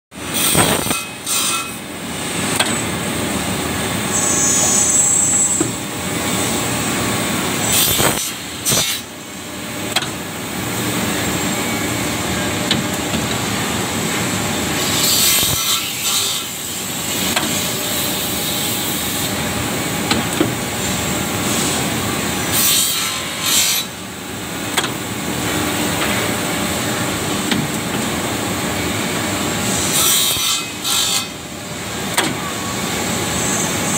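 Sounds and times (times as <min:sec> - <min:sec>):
saw blade cutting wood: 0:00.3 - 0:01.8, 0:07.7 - 0:09.1, 0:14.8 - 0:19.1, 0:22.5 - 0:24.0, 0:29.8 - 0:31.4.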